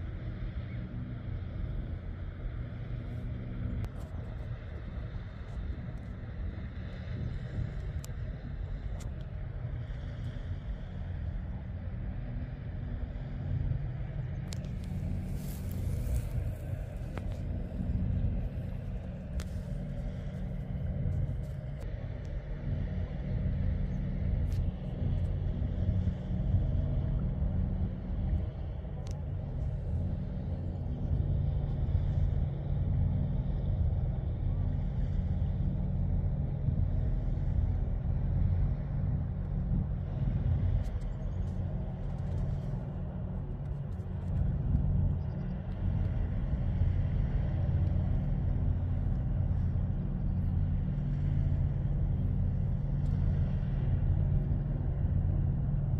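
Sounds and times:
low throbbing rumble: 0:00.0 - 0:55.9.

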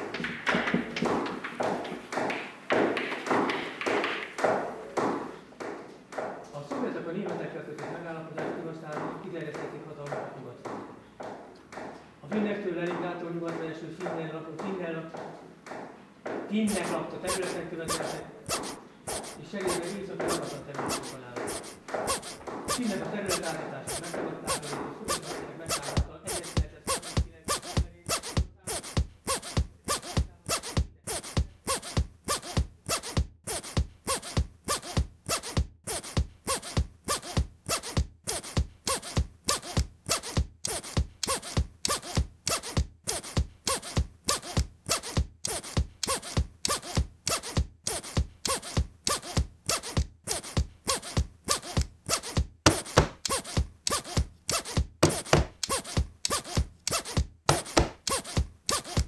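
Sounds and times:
pen scratching on paper: 0:16.7 - 0:59.0.

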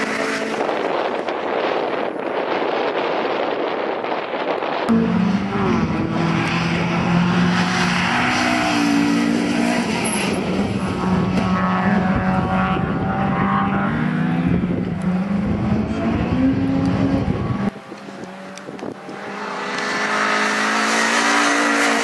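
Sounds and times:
rally car engine revving: 0:04.9 - 0:22.0.

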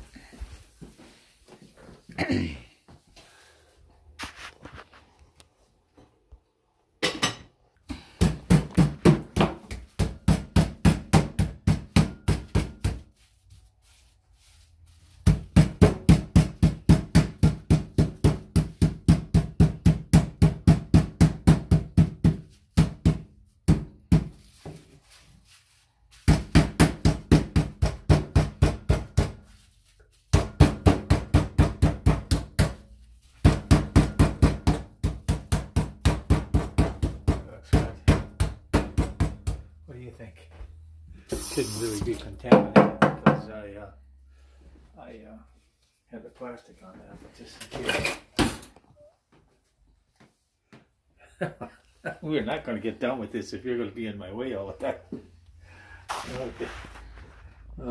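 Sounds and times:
rolling pin pounding chicken: 0:08.1 - 0:13.2, 0:15.1 - 0:24.4, 0:26.2 - 0:29.5, 0:30.3 - 0:39.7.

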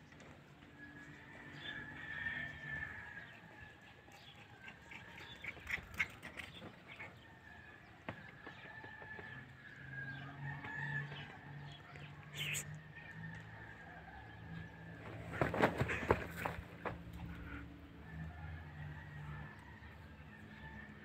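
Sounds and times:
bird calls: 0:04.1 - 0:07.2, 0:11.0 - 0:12.8.

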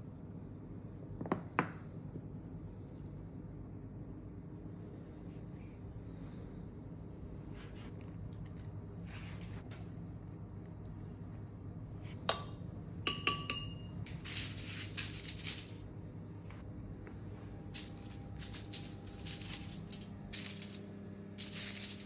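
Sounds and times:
utensil clinking ceramic bowl: 0:12.3 - 0:14.1
aluminium foil crinkling: 0:14.2 - 0:15.8, 0:17.8 - 0:20.8, 0:21.4 - 0:22.0.

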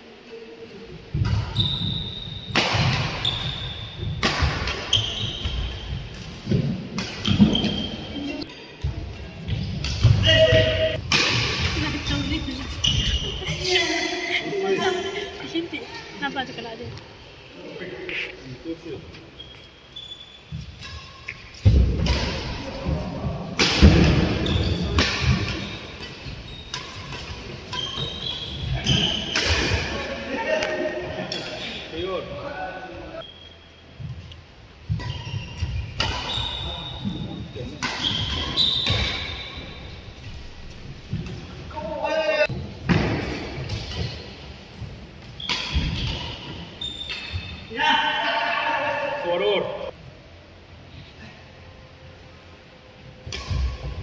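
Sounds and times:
sneakers squeaking on court floor: 0:01.2 - 0:11.0, 0:11.6 - 0:14.0, 0:19.1 - 0:22.4, 0:24.1 - 0:30.0, 0:33.2 - 0:41.6, 0:42.8 - 0:47.7
rackets hitting shuttlecock: 0:02.5 - 0:03.5, 0:04.1 - 0:07.8, 0:09.4 - 0:13.2, 0:23.6 - 0:31.6, 0:34.9 - 0:36.5, 0:37.8 - 0:39.4, 0:45.2 - 0:47.4, 0:53.2 - 0:54.0
shoes squeaking on wooden floor: 0:04.9 - 0:06.2, 0:25.6 - 0:29.4, 0:34.9 - 0:39.5, 0:45.3 - 0:47.7.

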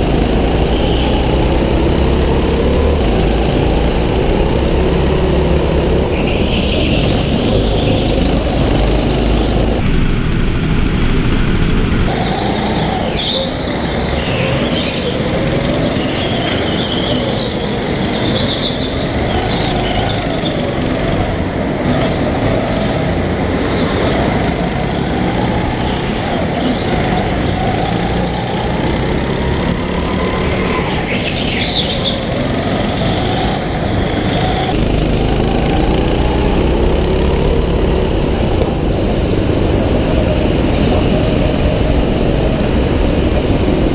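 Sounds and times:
go-kart engine revving: 0:00.0 - 0:43.9
tyre squeals: 0:12.2 - 0:20.8.

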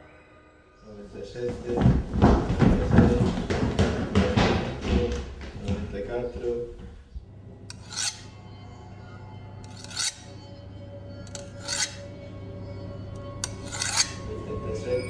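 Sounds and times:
low drone: 0:07.1 - 0:15.0
rasping scrape: 0:07.7 - 0:08.4, 0:09.6 - 0:10.6, 0:11.2 - 0:12.2, 0:13.2 - 0:14.4.

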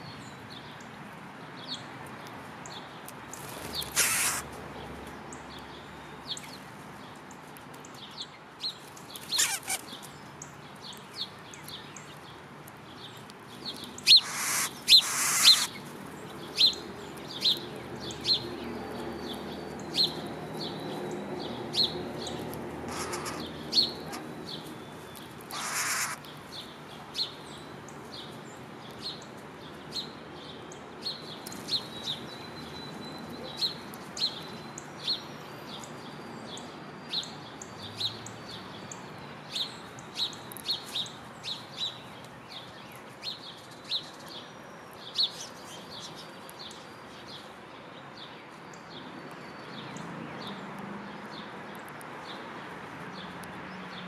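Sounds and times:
songbird chirping: 0:00.0 - 0:54.0.

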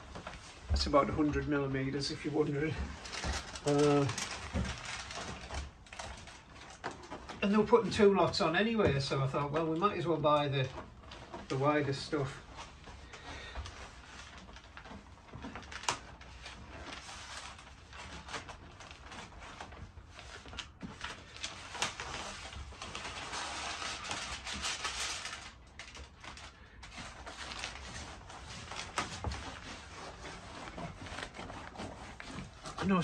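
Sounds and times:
foil tape crinkling: 0:02.0 - 0:07.6, 0:12.6 - 0:33.0.

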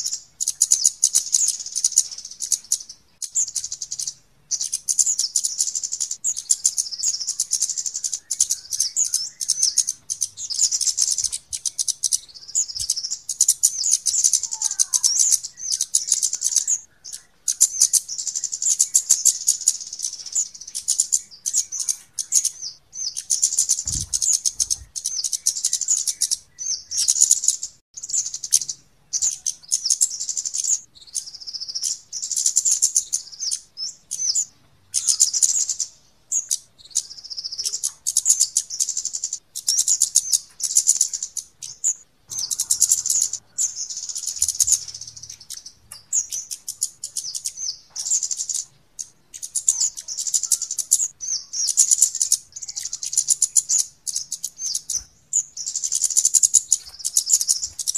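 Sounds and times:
high-pitched ticking bird chirps: 0:00.0 - 0:57.9.

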